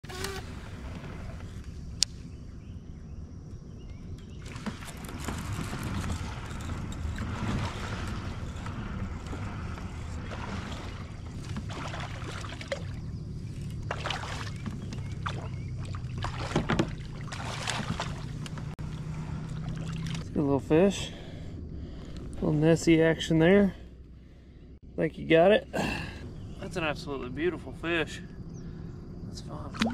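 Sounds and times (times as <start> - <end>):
water slapping around kayak: 4.2 - 20.9
fish thrashing and splashing: 4.4 - 20.3.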